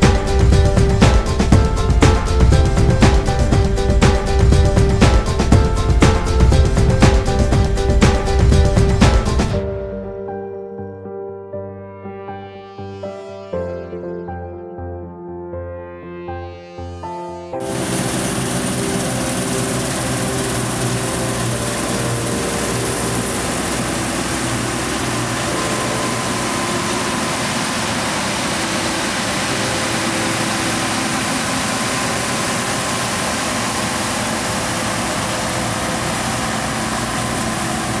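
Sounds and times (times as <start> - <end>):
combine harvester drone: 0.0 - 9.7, 17.6 - 38.0
hiss: 17.6 - 38.0.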